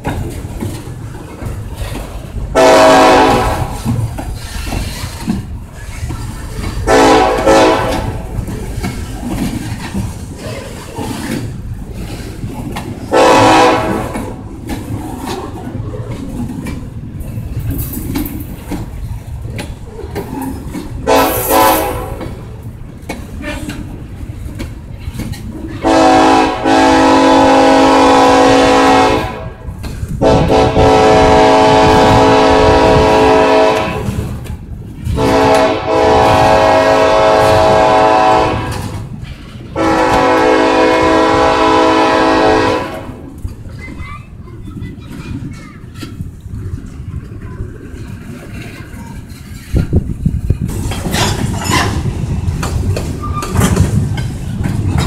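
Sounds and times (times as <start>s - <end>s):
freight train wheels rumbling: 0.0s - 55.0s
diesel locomotive horn: 2.5s - 4.0s, 6.9s - 8.4s, 13.1s - 14.4s, 21.0s - 22.5s, 25.8s - 34.3s, 35.1s - 39.1s, 39.8s - 43.3s.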